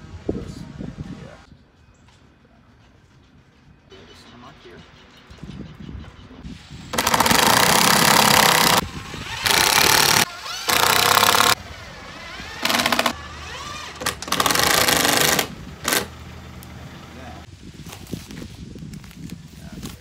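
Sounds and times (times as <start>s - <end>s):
power driver driving screws: 7.0s - 16.1s.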